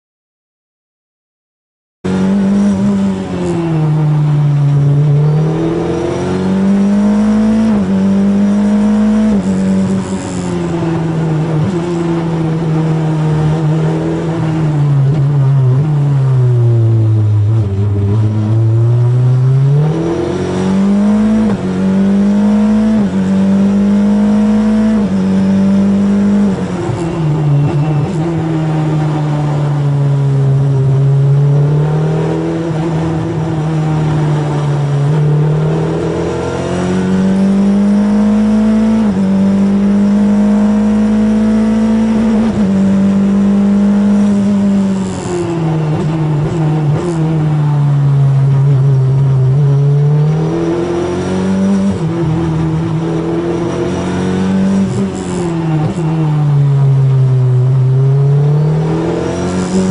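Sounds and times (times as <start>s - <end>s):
racing car engine revving: 2.1s - 59.9s.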